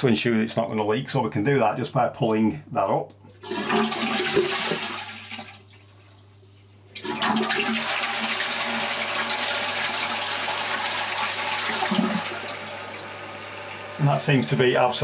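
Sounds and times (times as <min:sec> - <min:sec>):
toilet cistern flushing: 0:03.3 - 0:06.1, 0:06.9 - 0:15.0.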